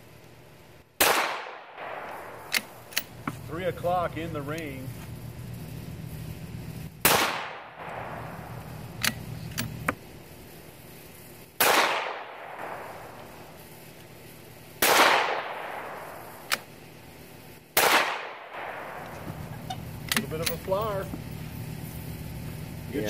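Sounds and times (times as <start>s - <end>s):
rifle shots with echo: 1.0s - 3.0s, 7.0s - 9.2s, 11.6s - 13.6s, 14.8s - 16.7s, 17.8s - 19.5s
rifle bolt clicks: 2.0s - 3.1s.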